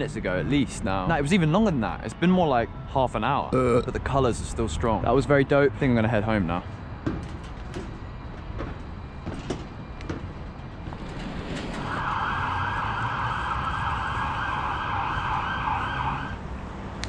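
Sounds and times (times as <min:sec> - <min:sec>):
siren fast yelp: 0:11.9 - 0:16.4.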